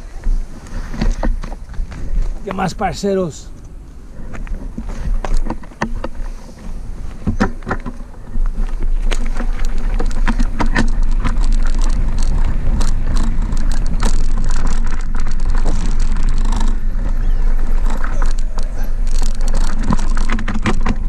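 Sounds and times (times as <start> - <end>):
tyres crunching on loose stones: 0.0 - 21.0
wind rumbling on microphone: 0.0 - 21.0
bike rattling and knocking: 4.1 - 21.0.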